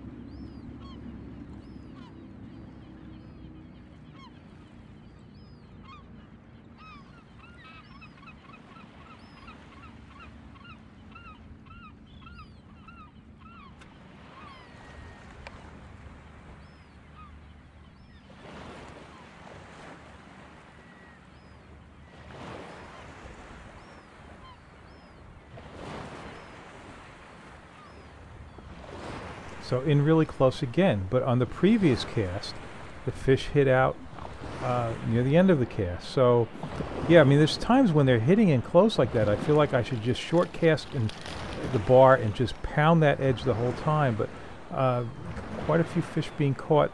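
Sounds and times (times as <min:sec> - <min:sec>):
flock of birds calling: 0:27.7 - 0:46.9.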